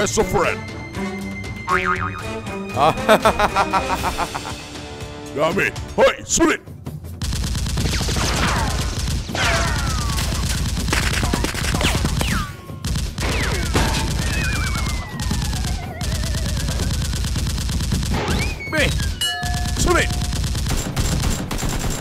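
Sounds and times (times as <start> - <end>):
rapid automatic gunfire: 7.2 - 22.0
falling whistles: 14.2 - 16.5, 18.2 - 19.2.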